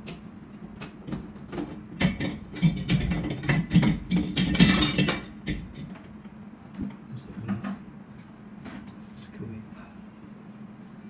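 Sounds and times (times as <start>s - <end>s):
metal hardware clinking and rattling: 2.0s - 5.9s.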